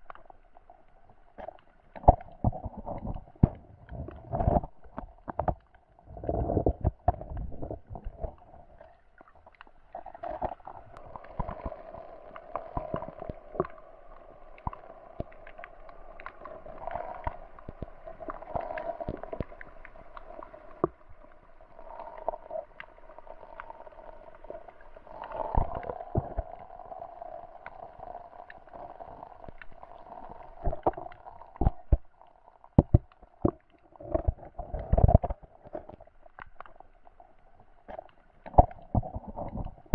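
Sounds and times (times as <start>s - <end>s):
sharp underwater clicks and knocks: 1.9s - 8.4s, 32.7s - 36.8s.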